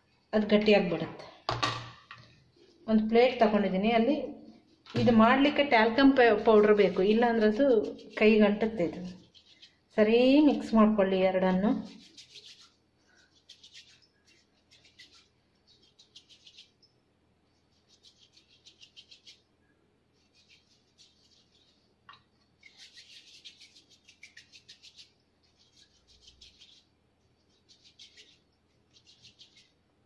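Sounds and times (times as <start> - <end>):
hands rubbing modelling clay: 4.6 - 11.0, 11.6 - 30.0.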